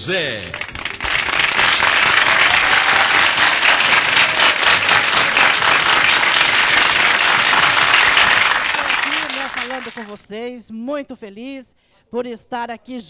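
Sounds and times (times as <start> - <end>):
audience applauding: 0.4 - 10.2.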